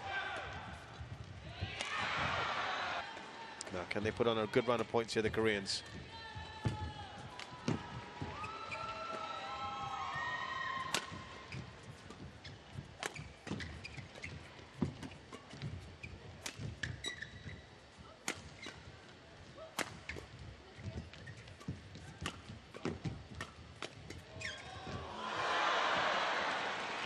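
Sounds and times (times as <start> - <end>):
rackets striking shuttlecock: 10.8 - 11.2
shoe squeaks on court: 12.4 - 16.2, 16.8 - 17.7, 21.0 - 21.8, 24.1 - 24.7.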